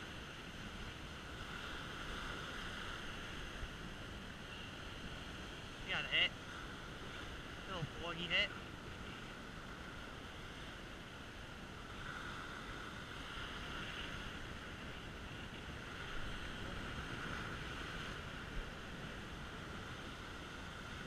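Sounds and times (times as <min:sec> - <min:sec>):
surf breaking on beach: 0:00.0 - 0:21.0
wind on microphone: 0:08.9 - 0:21.0.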